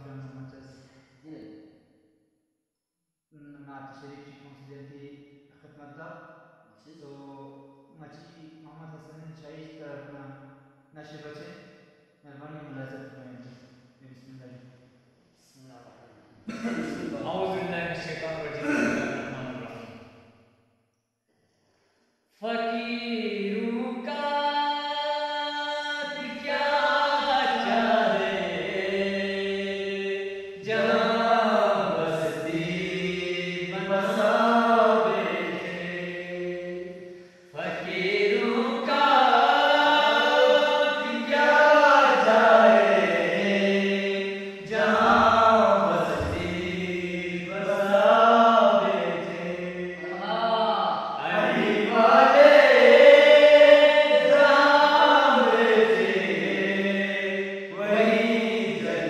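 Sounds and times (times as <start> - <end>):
men singing without instruments: 22.4 - 50.2, 51.1 - 59.0.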